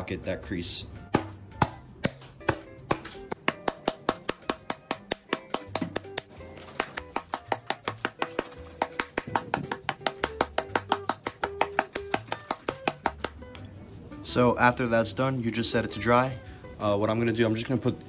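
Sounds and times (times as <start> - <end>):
background music: 0.0 - 18.0
mallet striking leather mitt: 1.1 - 13.4.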